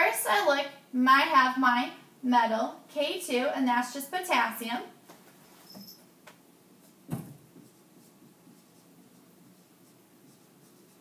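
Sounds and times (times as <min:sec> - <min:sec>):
marker scratching on whiteboard: 0:06.8 - 0:11.0.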